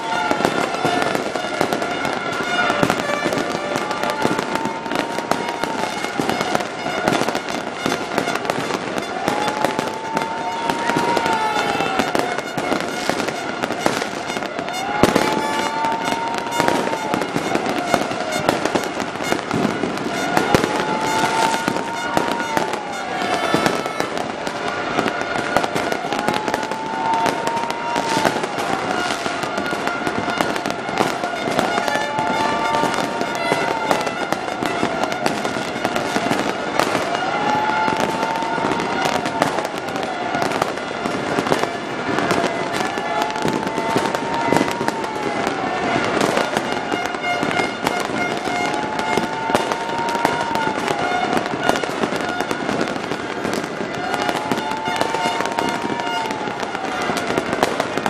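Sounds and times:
wailing siren tone: 0:00.0 - 0:40.7
fireworks bangs and crackles: 0:00.0 - 0:58.0.

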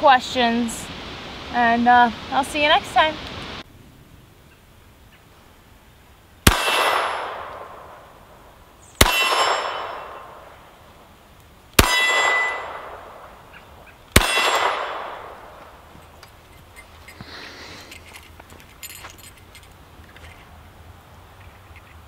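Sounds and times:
pistol shots: 0:06.4 - 0:08.0, 0:09.0 - 0:10.6, 0:11.8 - 0:13.4, 0:14.1 - 0:15.6
metallic clang ringing: 0:09.0 - 0:10.3, 0:11.8 - 0:12.8, 0:14.2 - 0:14.8.

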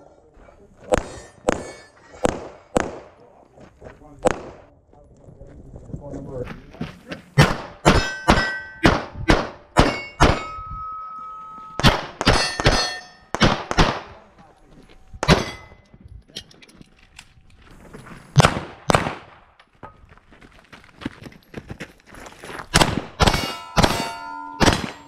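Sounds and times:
pistol shots: 0:00.9 - 0:03.2, 0:07.4 - 0:10.5, 0:11.8 - 0:14.2, 0:18.4 - 0:19.4, 0:22.7 - 0:25.0
steel target plates ringing: 0:07.8 - 0:09.0, 0:09.6 - 0:13.4, 0:15.3 - 0:15.9, 0:23.2 - 0:25.0.

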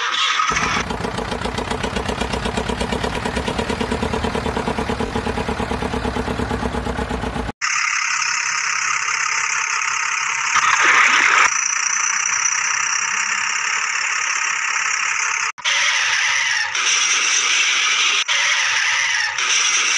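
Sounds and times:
truck engine hissing drone: 0:00.5 - 0:07.6.

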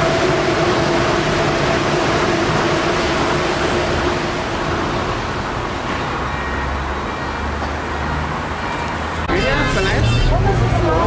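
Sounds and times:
monorail train rushing past: 0:00.0 - 0:11.0.

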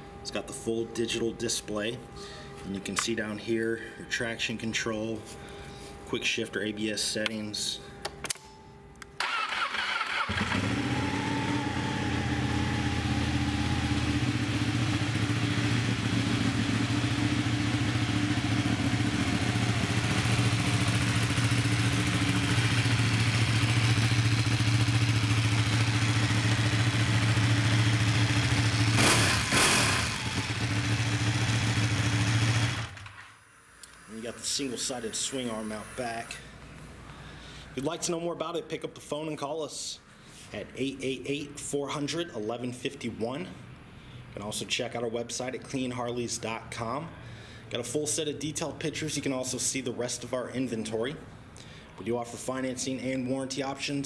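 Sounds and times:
engine revving: 0:09.2 - 0:33.1
motorcycle engine starting and idling: 0:09.2 - 0:36.4.

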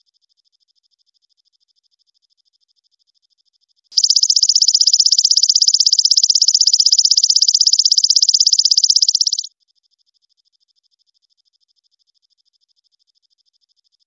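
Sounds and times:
katydid buzzing trill: 0:04.0 - 0:09.5.

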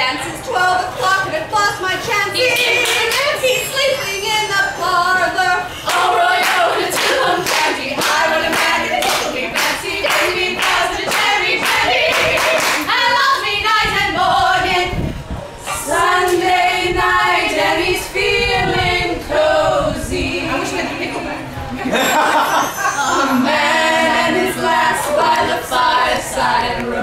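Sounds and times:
female vocal group singing: 0:00.0 - 0:22.0, 0:23.0 - 0:27.0
rhythmic hand clapping: 0:02.5 - 0:03.4, 0:05.8 - 0:13.5.

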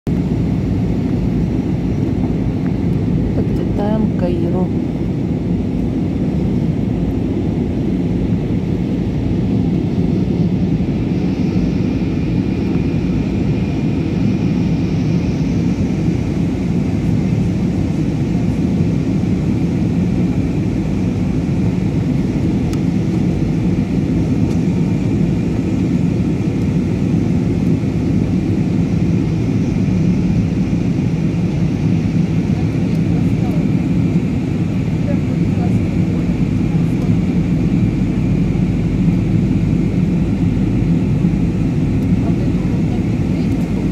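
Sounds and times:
airplane cabin engine roar: 0:00.1 - 0:43.9.

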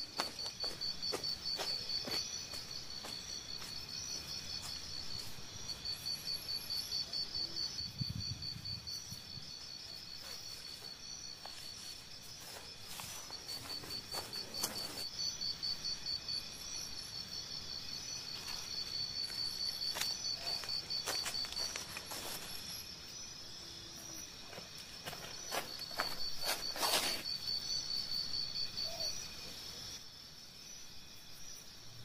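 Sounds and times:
insects trilling: 0:00.0 - 0:32.0
footsteps on dry grass: 0:10.2 - 0:15.1, 0:18.4 - 0:22.6, 0:24.5 - 0:27.2.

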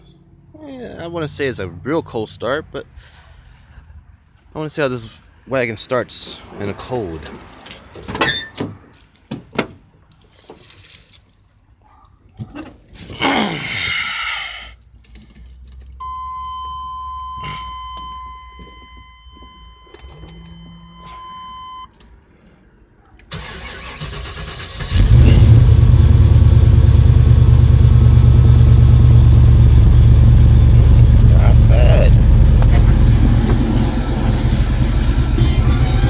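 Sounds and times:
engine cranking and starting: 0:23.3 - 0:26.9, 0:32.2 - 0:36.0
engine idling: 0:23.4 - 0:36.0
steady high tone: 0:30.7 - 0:36.0.

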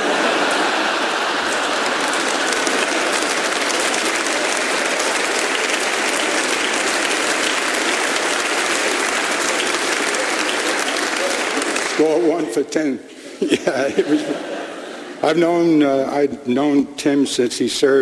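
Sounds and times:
audience applauding: 0:00.0 - 0:12.6.

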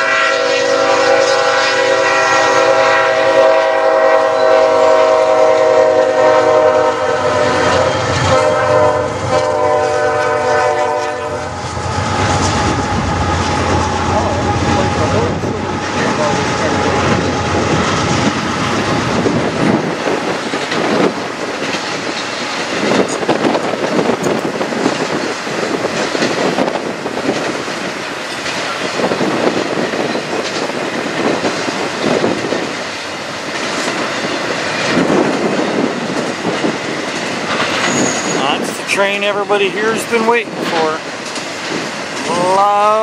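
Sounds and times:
freight train rumble: 0:00.0 - 0:43.0
wheels clattering over rails: 0:11.7 - 0:39.2, 0:40.1 - 0:42.7.

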